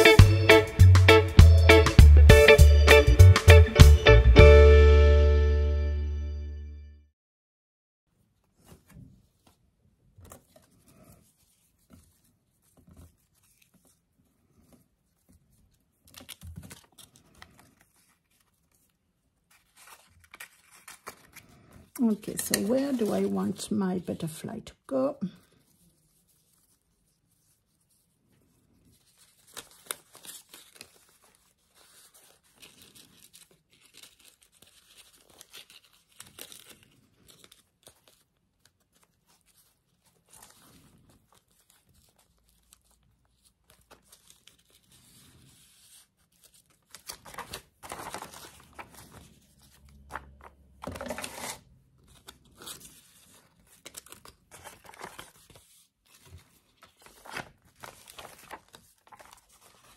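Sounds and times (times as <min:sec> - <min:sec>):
soft rubbing and small taps: 0:08.4 - 0:15.8
paper rustling and crinkling: 0:08.4 - 0:24.7, 0:25.4 - 0:59.9.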